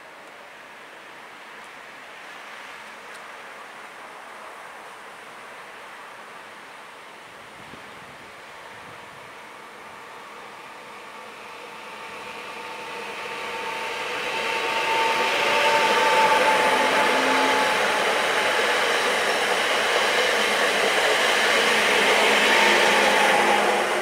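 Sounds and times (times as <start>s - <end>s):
electric train passing: 8.4s - 24.0s.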